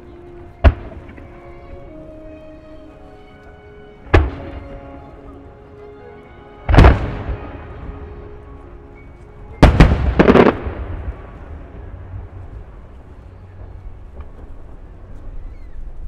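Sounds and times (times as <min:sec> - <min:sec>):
music: 0:00.0 - 0:16.0
firework shells bursting: 0:09.6 - 0:11.0.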